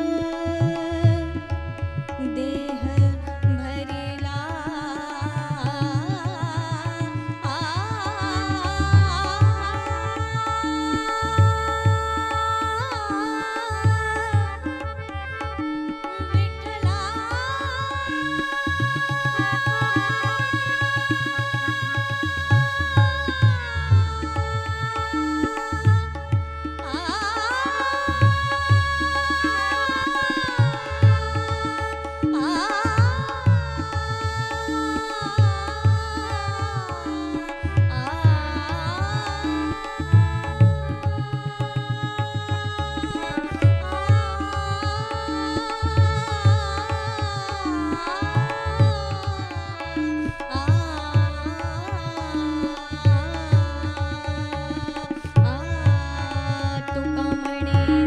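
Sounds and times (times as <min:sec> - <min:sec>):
harmonium chords: 0:00.0 - 0:20.9
tabla rhythm: 0:00.0 - 0:58.0
woman singing: 0:00.0 - 0:58.0.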